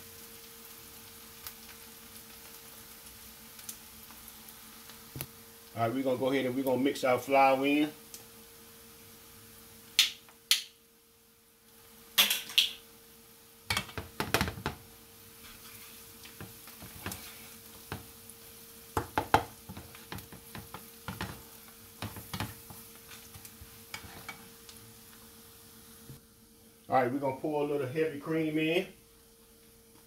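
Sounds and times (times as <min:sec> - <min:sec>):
onions sizzling: 0:00.0 - 0:30.0
spatula scraping a pan: 0:15.3 - 0:18.1, 0:19.0 - 0:24.6.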